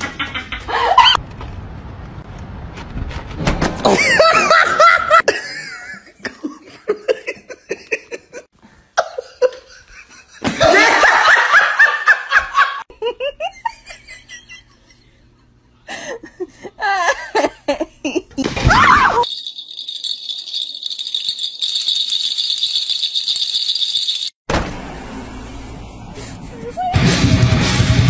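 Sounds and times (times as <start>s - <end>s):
people laughing: 3.9s - 15.3s.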